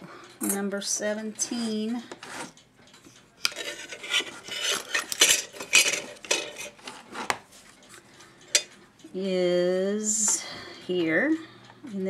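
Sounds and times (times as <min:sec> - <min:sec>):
wood scraping on wood: 0:03.5 - 0:07.8.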